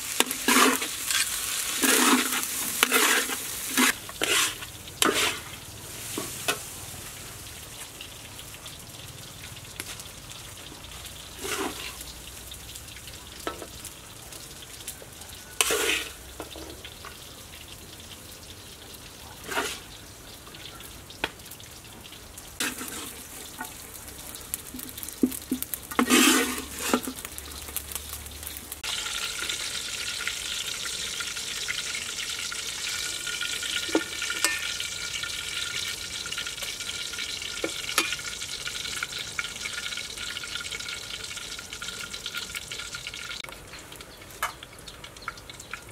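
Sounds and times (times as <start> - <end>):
fried rice sizzling in a wok: 0.0 - 45.9
metal ladle scraping a wok: 0.1 - 6.7, 11.4 - 12.1, 15.6 - 16.8, 19.4 - 19.9, 22.6 - 23.7, 25.8 - 27.3, 32.9 - 35.8.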